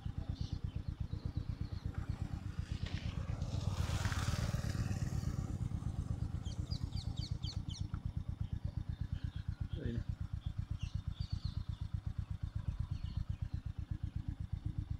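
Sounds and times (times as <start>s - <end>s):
bird chirps: 0.0s - 2.5s, 5.2s - 14.4s
motorcycle engine running: 0.0s - 14.9s.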